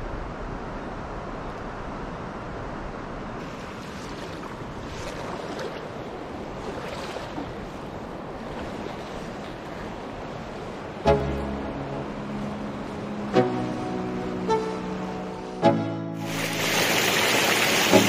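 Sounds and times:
river water rushing: 0:01.8 - 0:15.6, 0:16.2 - 0:18.0
music with sustained note: 0:11.0 - 0:18.0.

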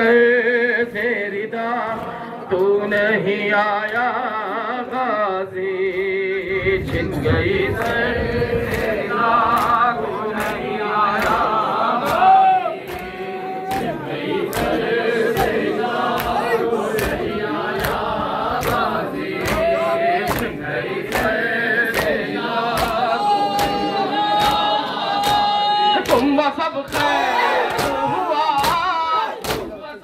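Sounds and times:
crowd chanting: 0:00.0 - 0:30.0
chest-beating slaps: 0:28.6 - 0:29.8.

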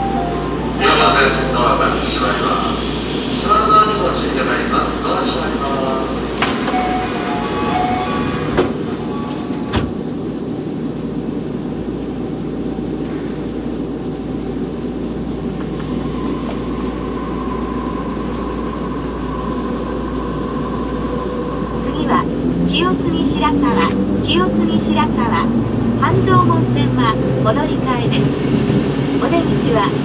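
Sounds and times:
subway car rumbling in tunnel: 0:00.0 - 0:30.0
faint steady whine: 0:09.0 - 0:23.5.

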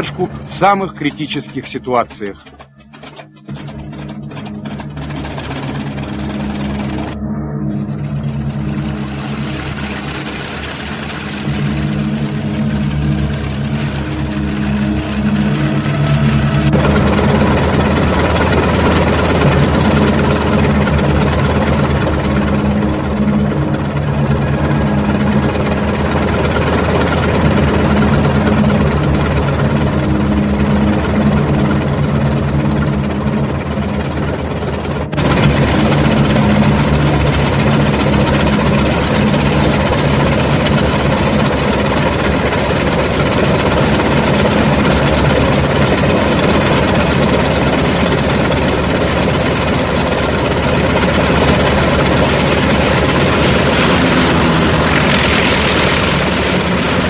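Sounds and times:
propeller plane engines idling: 0:00.0 - 0:57.0.

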